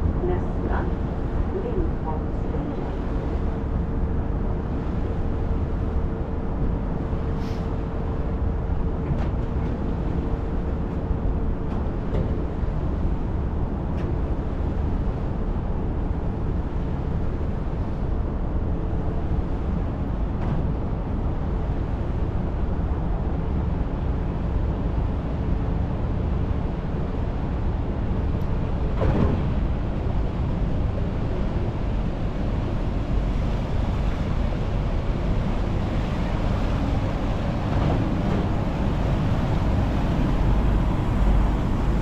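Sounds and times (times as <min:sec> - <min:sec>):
ferry engine droning: 0:00.0 - 0:42.0.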